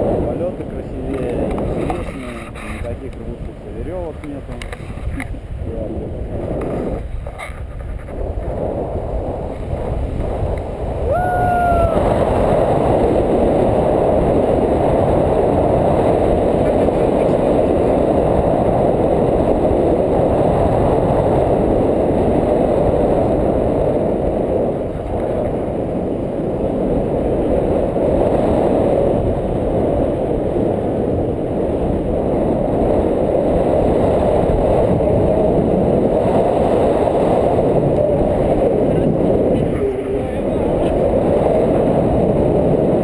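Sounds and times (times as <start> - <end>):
wind rushing over microphone: 0.0 - 43.0.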